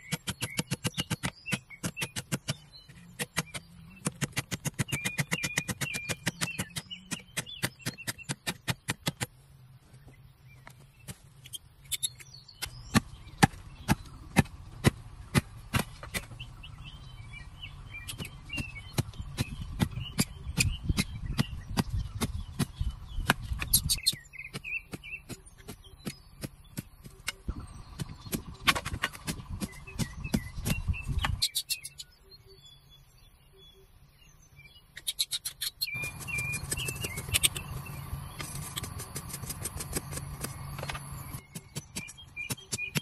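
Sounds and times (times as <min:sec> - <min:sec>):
faint birds chirping: 0:00.0 - 0:43.0
machete knocking bamboo strips: 0:12.6 - 0:16.4.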